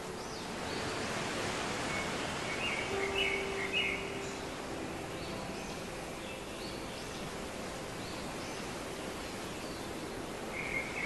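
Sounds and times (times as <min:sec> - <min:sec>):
steady outdoor background noise: 0:00.0 - 0:11.0
bird chirps: 0:02.0 - 0:04.5.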